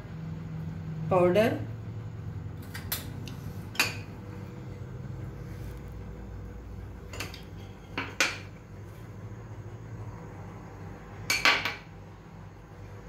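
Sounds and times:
glass bowls clinking on metal pan: 11.3 - 11.8.

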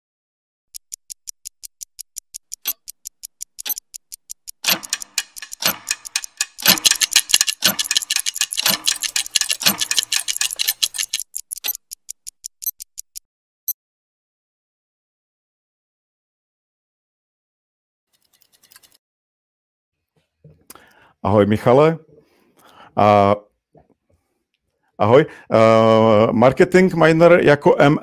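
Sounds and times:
clock-like ticks: 0.7 - 13.3.

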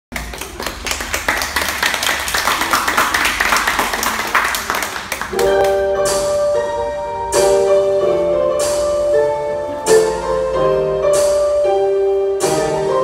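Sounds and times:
hand clapping: 0.1 - 6.3
room noise: 0.1 - 13.0
slow keyboard music: 5.2 - 13.0.

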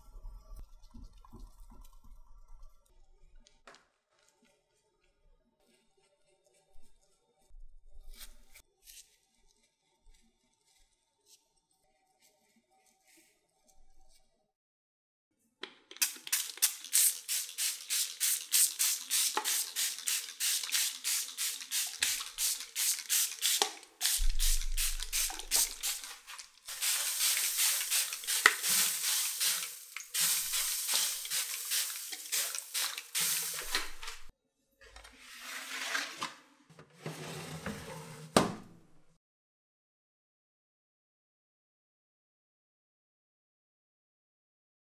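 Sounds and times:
sieve tapping and sifting hiss: 16.0 - 34.3.

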